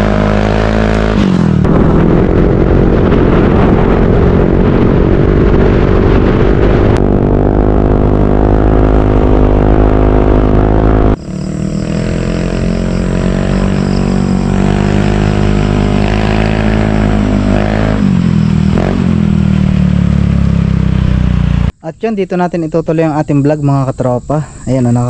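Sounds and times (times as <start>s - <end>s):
scooter engine running: 1.6s - 21.7s.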